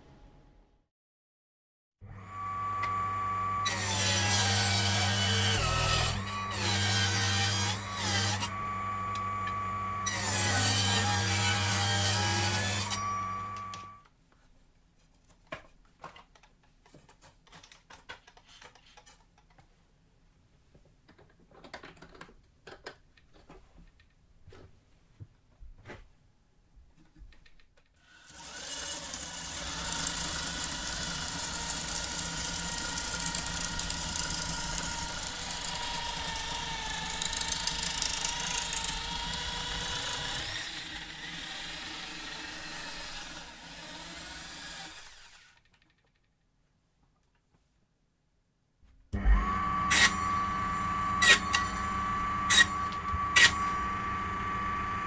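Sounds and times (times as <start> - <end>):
electric drill motor whine: 2.1 - 14.0, 28.2 - 45.6, 49.2 - 55.0.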